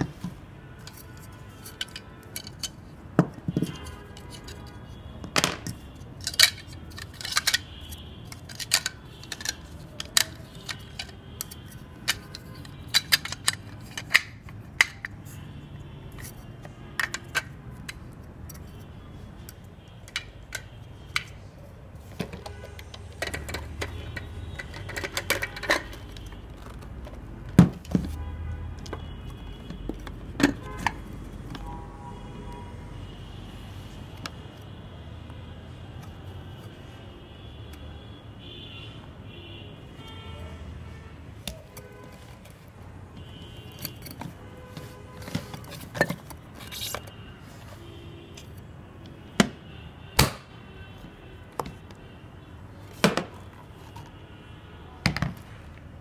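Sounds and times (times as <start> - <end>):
plastic clicks and knocks: 22.2 - 28.2, 28.8 - 31.7, 51.6 - 52.0.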